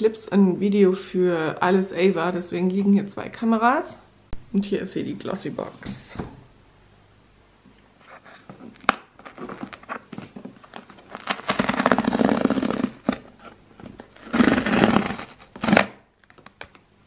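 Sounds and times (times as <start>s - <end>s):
cardboard tear strip ripping: 10.6s - 16.5s.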